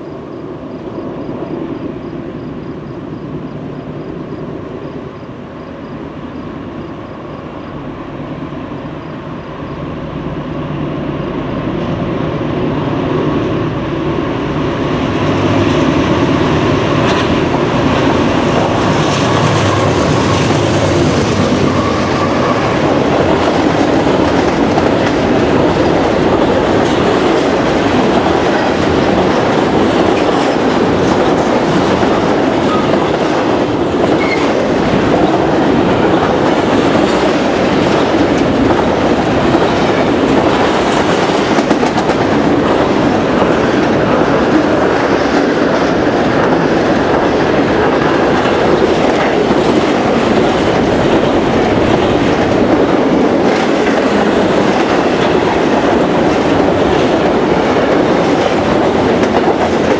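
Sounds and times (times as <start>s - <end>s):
diesel locomotive engines: 0.0s - 59.9s
train wheels clattering over rails: 15.4s - 59.9s.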